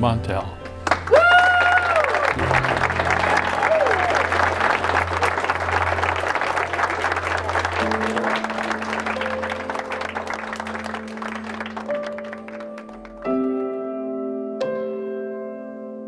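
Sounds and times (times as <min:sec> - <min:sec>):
music with long held notes: 0:00.0 - 0:16.0
crowd applauding: 0:00.8 - 0:13.6.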